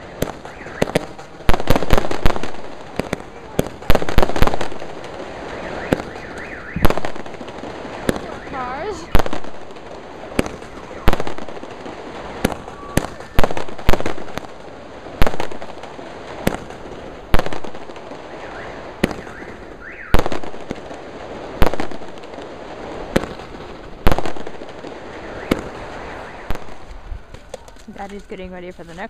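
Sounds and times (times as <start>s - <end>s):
fireworks bangs: 0.0s - 29.0s.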